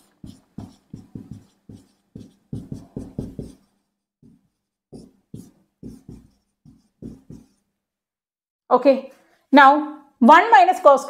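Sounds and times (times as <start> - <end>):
marker writing on whiteboard: 0.0 - 7.7.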